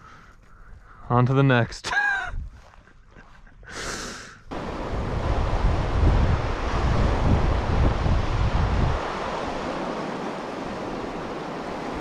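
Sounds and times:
wind buffeting microphone: 2.2s - 2.8s, 4.5s - 12.0s
river rushing: 4.5s - 12.0s.

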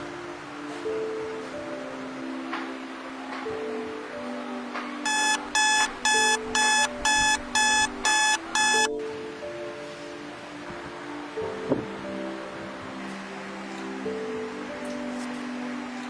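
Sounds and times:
soft background music: 0.0s - 16.0s
phone alarm beeping: 5.1s - 9.0s.

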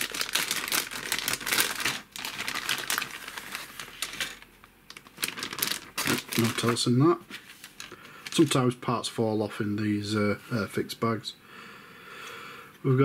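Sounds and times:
plastic bag crinkling: 0.0s - 8.6s.

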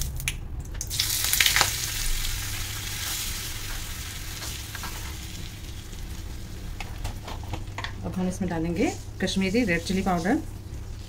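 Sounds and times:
butter sizzling in hot oil: 0.9s - 6.6s.

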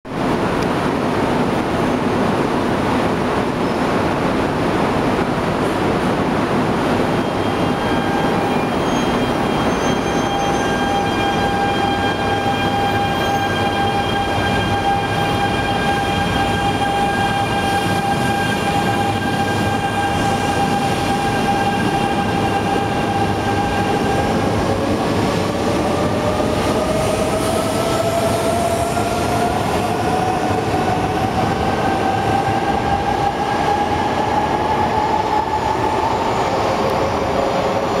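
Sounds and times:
train rumble: 0.1s - 38.0s
train electrical whine: 6.9s - 38.0s.

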